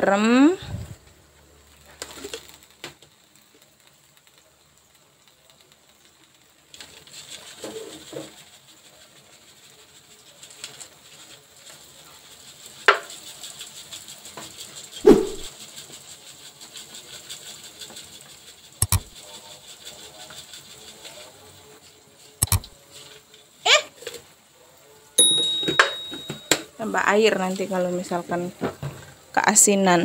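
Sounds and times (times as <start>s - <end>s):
sharp click: 18.8s - 19.2s, 22.4s - 22.8s.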